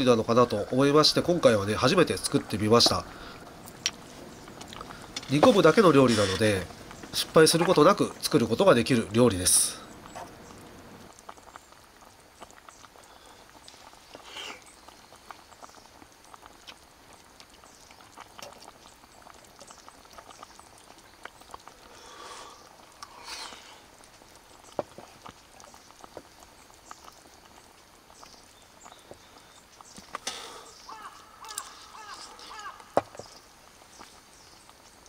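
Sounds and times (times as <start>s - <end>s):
faint calls: 30.2s - 33.4s.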